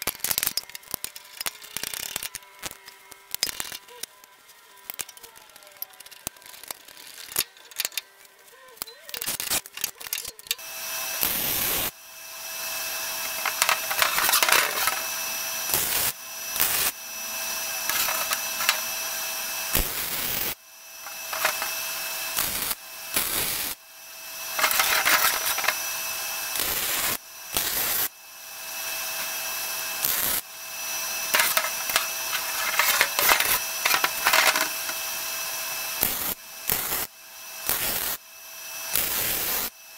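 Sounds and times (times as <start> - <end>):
welder crackling sizzle: 0.0 - 39.9.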